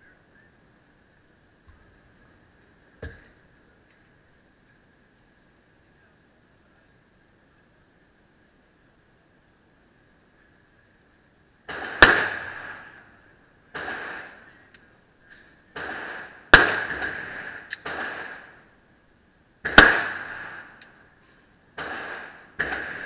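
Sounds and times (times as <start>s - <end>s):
pistol gunshots with reverberation: 11.7s - 13.1s, 13.7s - 14.5s, 15.7s - 18.7s, 19.6s - 20.8s, 21.8s - 23.0s.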